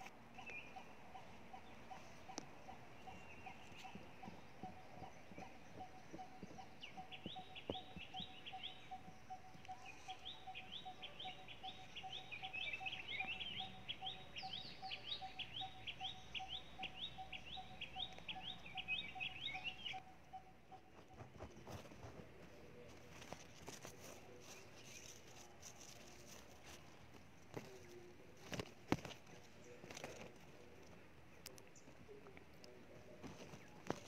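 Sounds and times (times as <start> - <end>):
bird chirping rapidly: 0.0 - 21.9.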